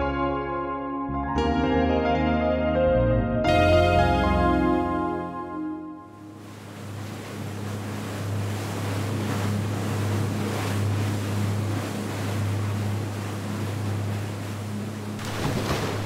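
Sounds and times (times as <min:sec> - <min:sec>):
motorboat engine running: 0:03.5 - 0:16.0
water rushing past hull: 0:06.2 - 0:16.0.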